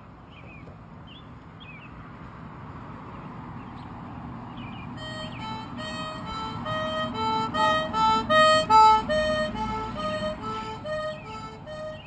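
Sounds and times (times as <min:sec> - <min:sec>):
concertina playing: 0:05.0 - 0:12.0.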